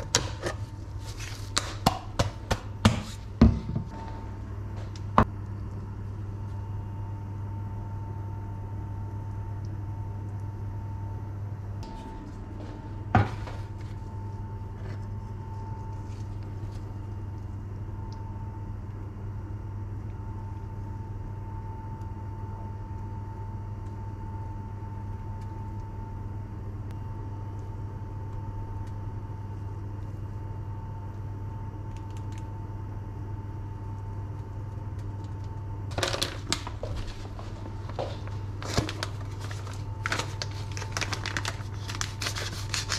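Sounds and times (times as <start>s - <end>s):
steady low hum: 0.0s - 42.9s
plastic packet crinkling: 35.9s - 42.9s.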